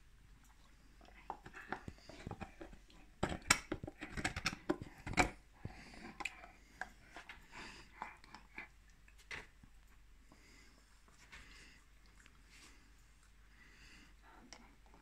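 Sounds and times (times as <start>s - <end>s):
dog gnawing a bone: 0.4s - 9.7s.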